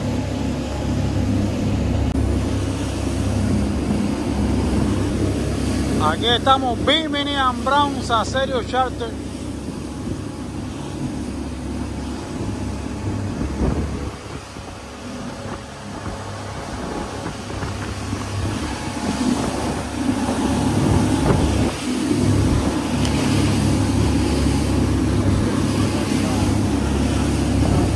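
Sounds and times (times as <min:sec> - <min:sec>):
outboard motors droning: 0:00.0 - 0:27.9
wake water churning: 0:00.0 - 0:27.9
wind rushing: 0:09.6 - 0:25.3.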